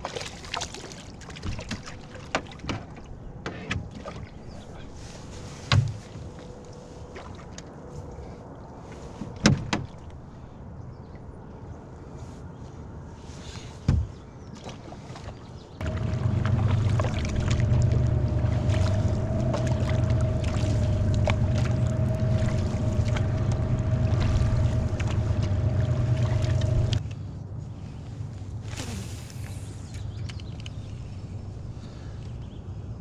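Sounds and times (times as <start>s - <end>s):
small motor humming and whining: 15.8s - 27.0s.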